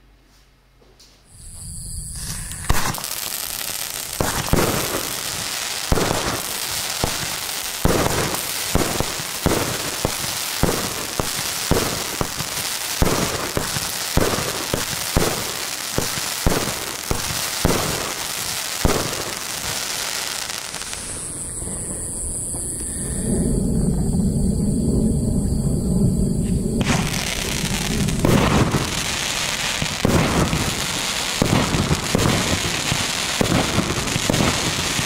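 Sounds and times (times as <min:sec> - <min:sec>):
firework crackling: 0:01.4 - 0:22.9, 0:26.8 - 0:35.0
firework shots sharp reports: 0:02.1 - 0:21.6, 0:26.8 - 0:35.0.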